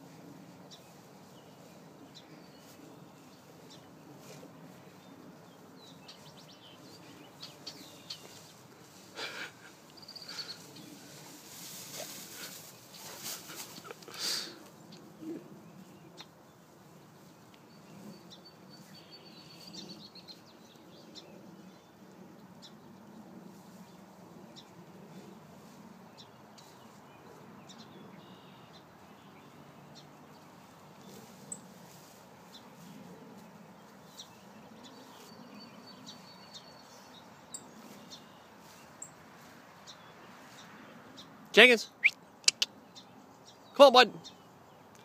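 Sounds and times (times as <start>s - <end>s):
high bird trill: 41.8s - 42.8s.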